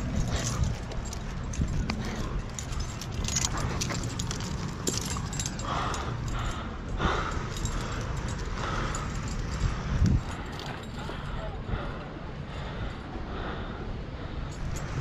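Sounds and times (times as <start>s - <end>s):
carabiners clinking: 0.0s - 13.1s, 14.4s - 15.0s
steady low rumble: 0.0s - 15.0s.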